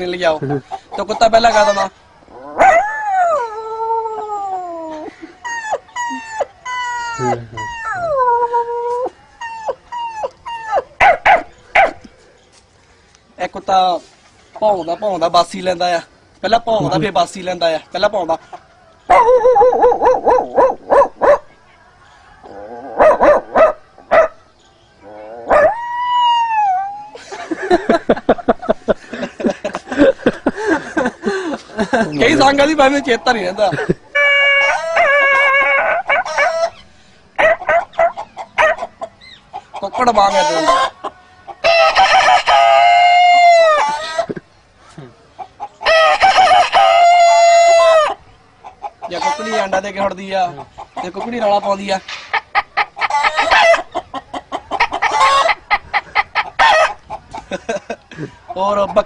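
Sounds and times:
man imitating rooster crow: 0:07.0 - 0:09.1, 0:41.6 - 0:44.3, 0:45.9 - 0:48.1
man imitating dog barks: 0:07.2 - 0:08.2.

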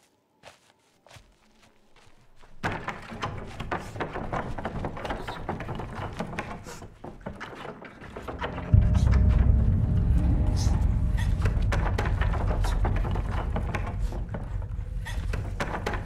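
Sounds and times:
wooden planks rattling and knocking: 0:02.5 - 0:08.9, 0:11.8 - 0:16.0
loud low boom: 0:08.4 - 0:16.0.

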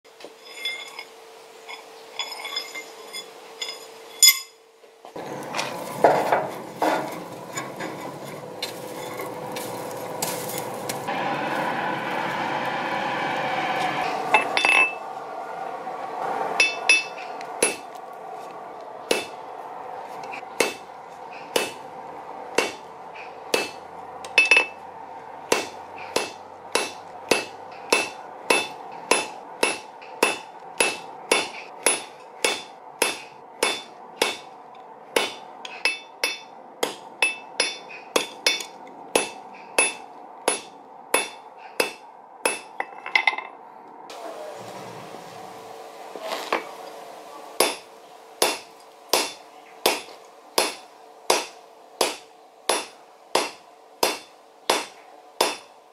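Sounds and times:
hammer striking steel on anvil: 0:16.6 - 0:17.9, 0:19.1 - 0:19.4, 0:20.6 - 0:21.8, 0:22.5 - 0:24.8, 0:25.5 - 0:34.6, 0:35.2 - 0:43.5, 0:47.6 - 0:55.7.

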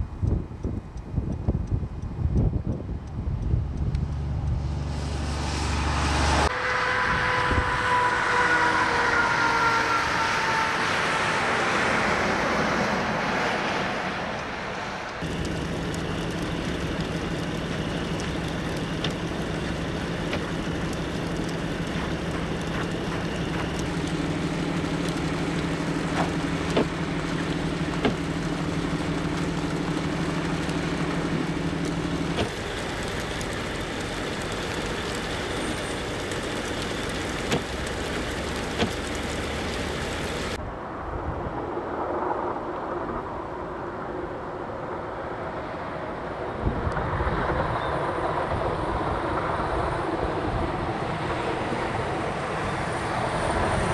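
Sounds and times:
highway traffic noise: 0:00.0 - 0:53.9
truck engine idling: 0:15.2 - 0:40.6.

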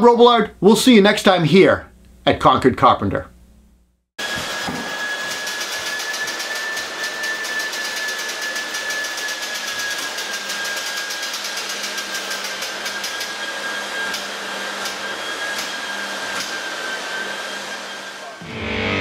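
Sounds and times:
low hum: 0:18.4 - 0:19.0.

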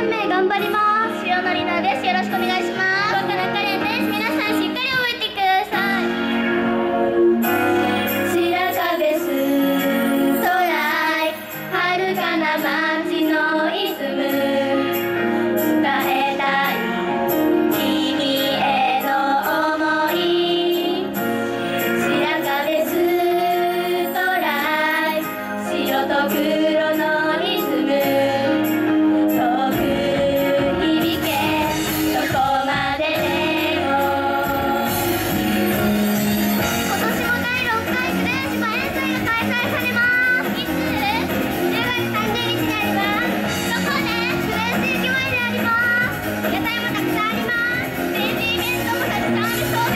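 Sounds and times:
pop backing track: 0:00.0 - 0:49.9
girls singing together: 0:08.3 - 0:14.9, 0:15.7 - 0:17.0, 0:17.7 - 0:21.2, 0:22.0 - 0:35.2.

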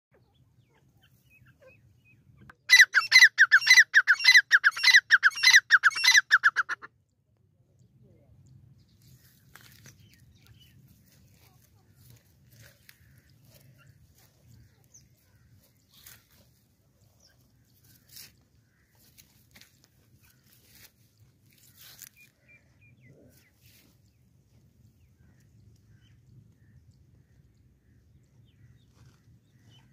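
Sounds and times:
rustling of dry grass: 0:08.8 - 0:29.9.

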